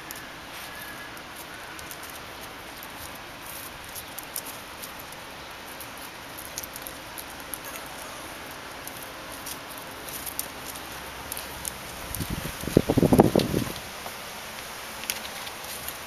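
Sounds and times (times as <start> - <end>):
steady hiss: 0.0 - 16.0
puppy claws ticking on stone: 1.1 - 12.3.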